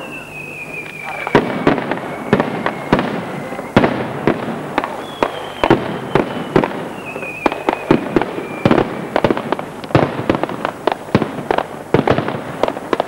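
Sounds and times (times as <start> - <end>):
thin whistle: 0.0 - 4.0, 5.0 - 8.9
firecrackers banging: 0.0 - 13.0.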